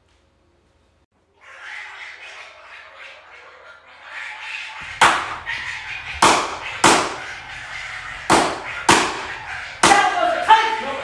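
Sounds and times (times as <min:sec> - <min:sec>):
loud sharp bangs: 0:04.8 - 0:10.2.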